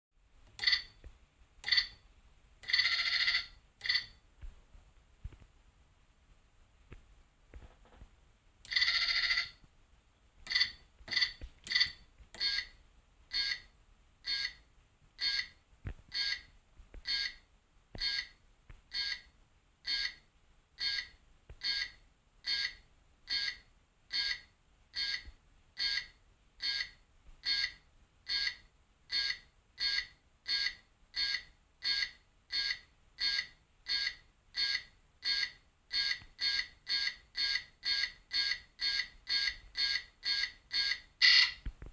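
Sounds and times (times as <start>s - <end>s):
two-tone electronic beeps: 29.2s - 41.6s.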